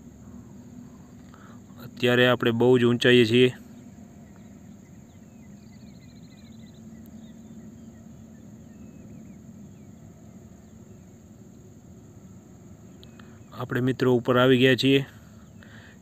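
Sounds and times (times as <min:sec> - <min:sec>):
gondola cabin hum: 0:00.0 - 0:13.8
bird trill: 0:02.6 - 0:11.7
bird chirps: 0:02.9 - 0:11.7.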